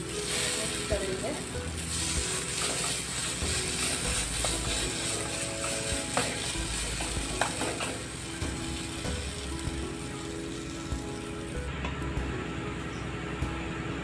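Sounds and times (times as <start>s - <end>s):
paste sizzling in a pan: 0.0s - 11.6s
spatula scraping a pan: 1.7s - 8.2s.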